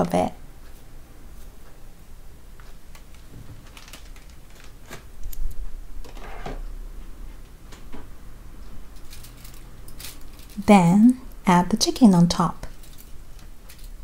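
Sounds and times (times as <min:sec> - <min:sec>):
plastic bag rustling: 0:03.2 - 0:05.2, 0:09.0 - 0:10.8.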